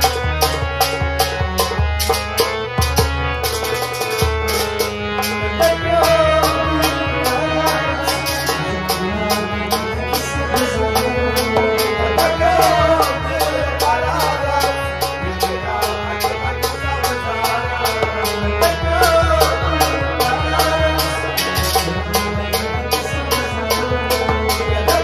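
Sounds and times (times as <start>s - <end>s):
melodic accompaniment: 0.0s - 25.0s
man singing: 5.2s - 25.0s.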